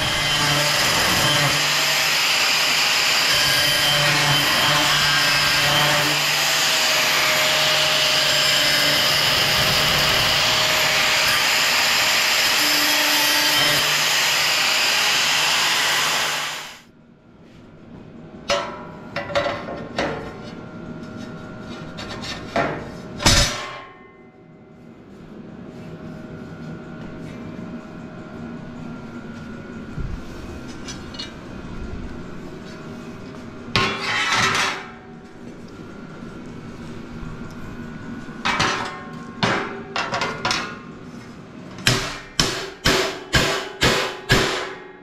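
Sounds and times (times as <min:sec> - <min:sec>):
angle grinder grinding steel: 0:00.0 - 0:16.8.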